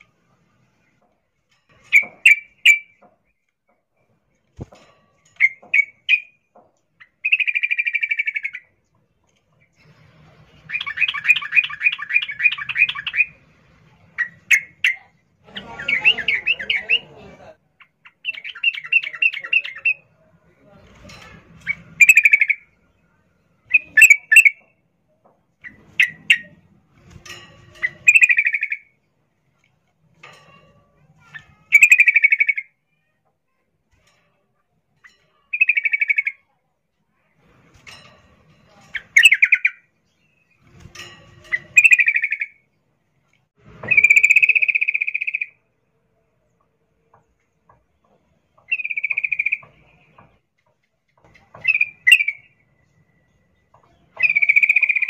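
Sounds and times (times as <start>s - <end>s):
bird rattling call: 41.0s - 42.6s
bird single chirps: 48.6s - 50.2s.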